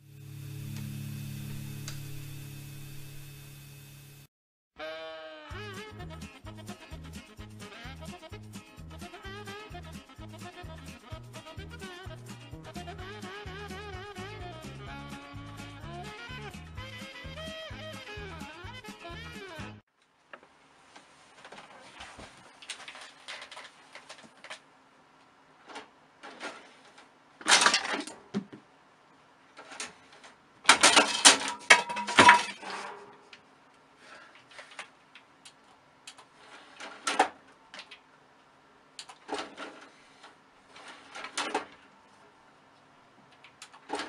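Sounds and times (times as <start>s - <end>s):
curtain rustling: 20.7s - 24.7s, 25.6s - 28.1s, 36.3s - 37.4s, 39.2s - 41.9s.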